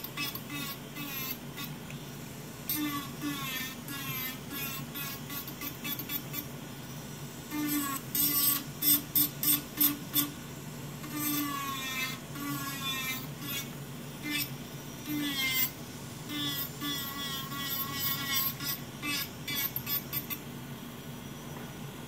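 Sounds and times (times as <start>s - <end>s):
electric nail file grinding: 0.0s - 1.9s, 2.6s - 6.5s, 7.4s - 20.5s
dust collector fan hum: 0.0s - 22.0s.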